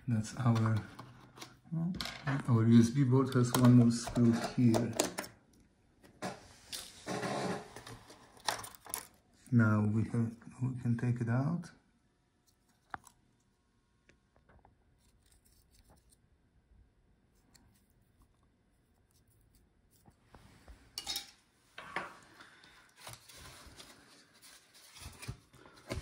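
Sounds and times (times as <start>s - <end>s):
plastic scraping and knocking: 3.3s - 5.3s.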